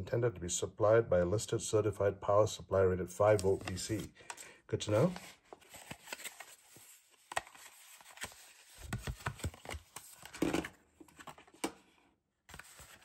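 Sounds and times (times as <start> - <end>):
cardboard packaging rustling: 3.4 - 11.9, 12.5 - 13.0.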